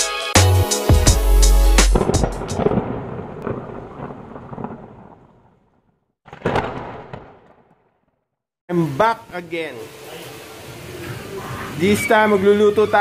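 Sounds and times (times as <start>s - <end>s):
intro music: 0.0s - 2.6s
deep bass hit: 1.1s - 2.8s
thunder-like rumbling effect: 2.0s - 7.7s.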